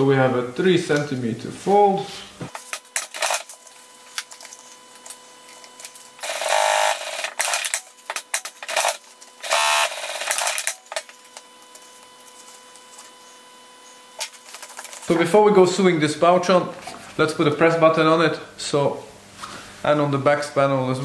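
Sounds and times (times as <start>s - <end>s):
sewing machine bursts: 6.2s - 7.8s, 8.7s - 10.9s.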